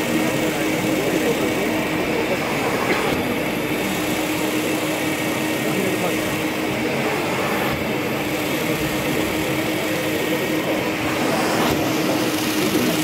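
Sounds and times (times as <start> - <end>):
vacuum motor humming: 0.0 - 13.0.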